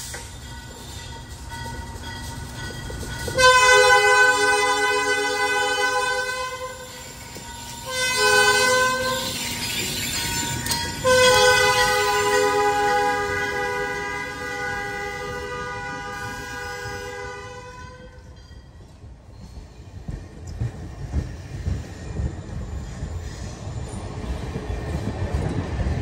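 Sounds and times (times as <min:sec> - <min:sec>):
passing train rumble: 0:00.0 - 0:26.0
locomotive air horn blasts: 0:03.4 - 0:07.0, 0:07.8 - 0:09.4, 0:11.0 - 0:18.2.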